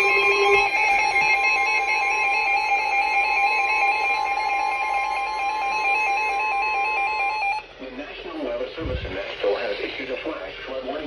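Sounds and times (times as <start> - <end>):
warbling emergency alert tones: 0.0 - 7.7.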